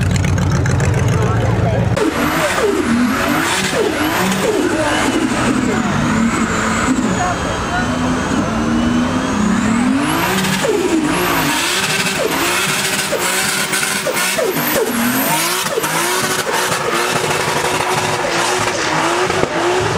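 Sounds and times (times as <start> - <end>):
car engine revving: 0.0 - 19.9.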